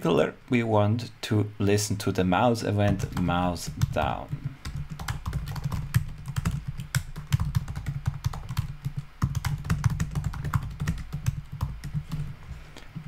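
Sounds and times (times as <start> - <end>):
typing on computer keyboard: 2.9 - 12.3.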